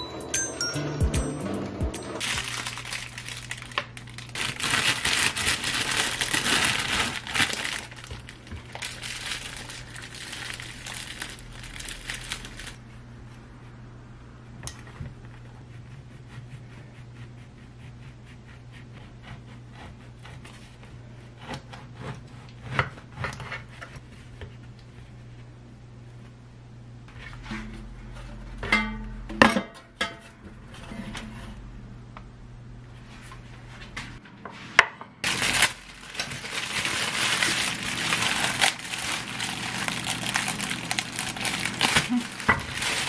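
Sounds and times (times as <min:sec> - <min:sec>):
low steady hum: 0:00.0 - 0:43.0
plastic bag crinkling: 0:02.2 - 0:12.8, 0:35.2 - 0:43.0.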